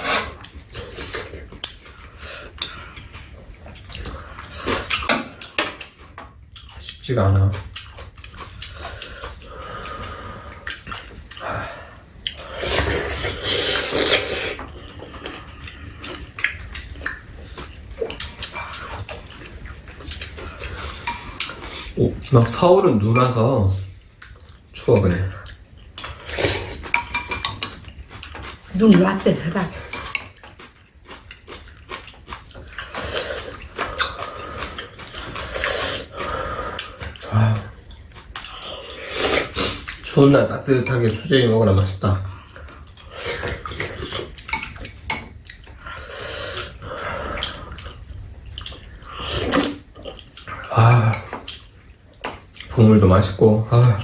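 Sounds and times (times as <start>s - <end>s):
slurping soup: 0.0s - 1.5s, 12.3s - 16.4s, 32.8s - 37.3s, 38.4s - 40.0s
slurping soup from spoons: 12.4s - 14.7s
spoons scraping ceramic bowls: 20.9s - 21.6s.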